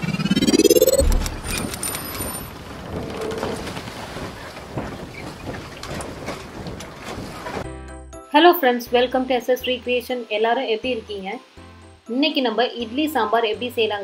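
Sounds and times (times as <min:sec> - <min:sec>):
rising whoosh: 0:00.0 - 0:02.5
deep boom: 0:00.4 - 0:01.8
scattered clicks: 0:00.7 - 0:02.5.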